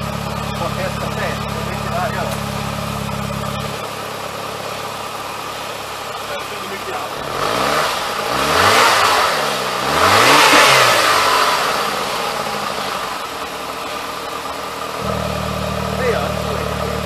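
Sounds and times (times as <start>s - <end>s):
car engine revving and idling: 0.0s - 17.0s.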